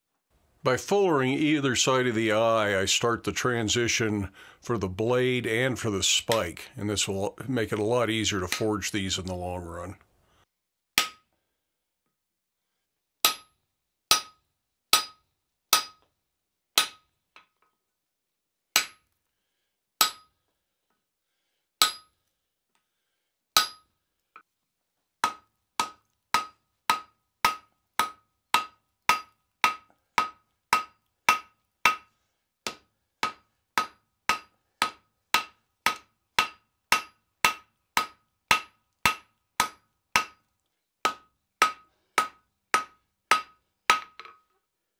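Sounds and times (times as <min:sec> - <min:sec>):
hammer striking steel on anvil: 0:11.0 - 0:11.2, 0:13.2 - 0:16.1, 0:16.8 - 0:17.1, 0:18.8 - 0:19.0, 0:20.0 - 0:20.3, 0:21.8 - 0:22.1, 0:23.6 - 0:23.9, 0:25.2 - 0:32.1, 0:32.7 - 0:40.4, 0:41.0 - 0:44.4.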